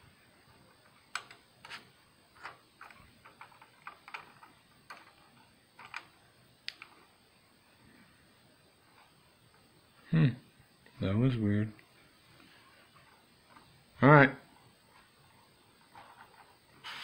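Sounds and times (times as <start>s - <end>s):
faint irregular clicks: 0.8s - 1.8s, 2.4s - 7.1s.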